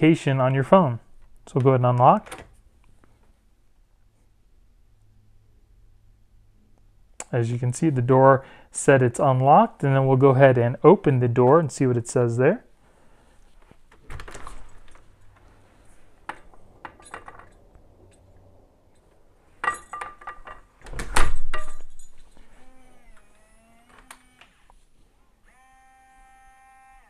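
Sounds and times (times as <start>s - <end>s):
door shutting with heavy thud: 20.8s - 21.8s
lock motor whirring: 22.6s - 24.8s, 25.4s - 27.0s.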